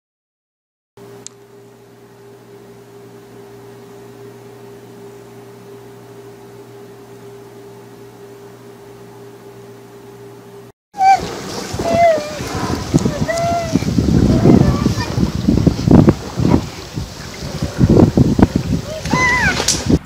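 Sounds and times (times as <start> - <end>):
high gliding voice-like sound: 11.0 - 15.3.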